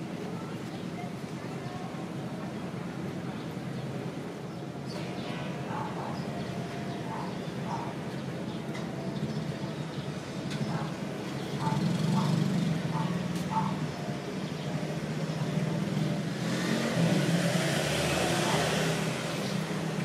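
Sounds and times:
traffic hum: 0.0 - 20.0
vehicle passing by: 11.6 - 13.6, 15.0 - 20.0.

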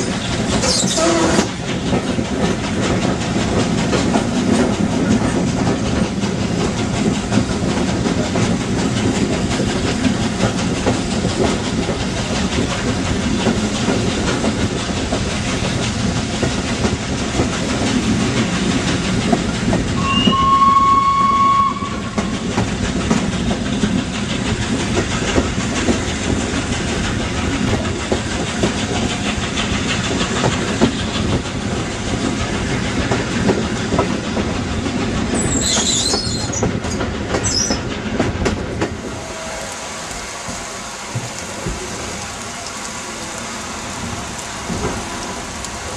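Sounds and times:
train running: 0.0 - 45.9
steam whistle: 0.7 - 1.5, 20.0 - 22.6, 39.0 - 45.4
high squeals: 20.0 - 22.3.

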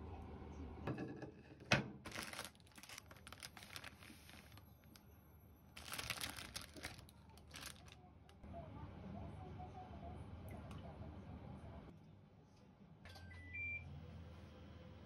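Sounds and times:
plastic wrapper crinkling and tearing: 2.0 - 5.0, 5.8 - 8.4.

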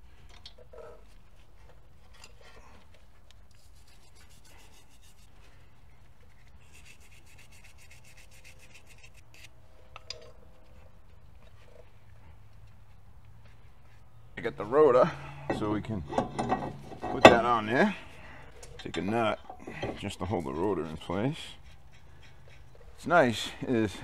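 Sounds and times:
wire brush scrubbing metal: 14.8 - 24.0.

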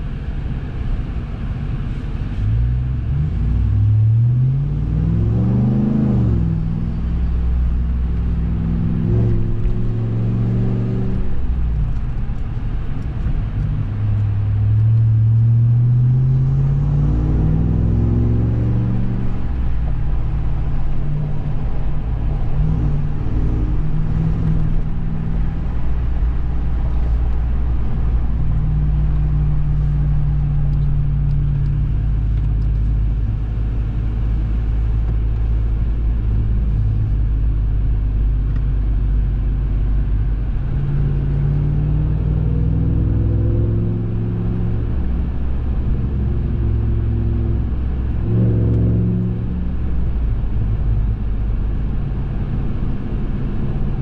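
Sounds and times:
truck engine droning: 1.9 - 54.0.

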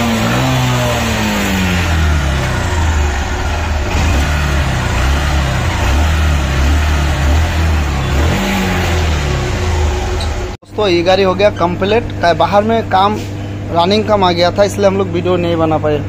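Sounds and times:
motorcycle engine revving: 0.0 - 10.6.

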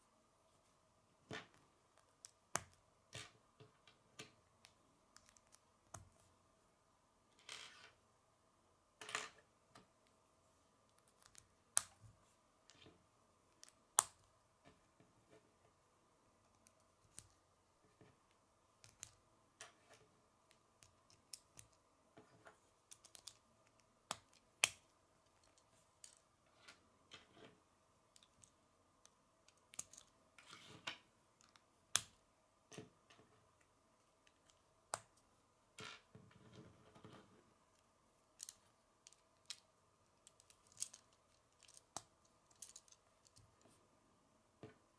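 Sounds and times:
plastic pieces clicking together: 22.9 - 26.2, 29.5 - 30.1, 40.2 - 43.5.

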